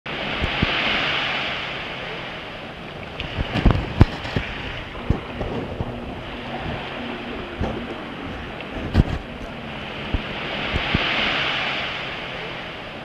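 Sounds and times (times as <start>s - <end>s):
small waves washing on beach: 0.1s - 13.0s
wind buffeting microphone: 0.1s - 13.0s.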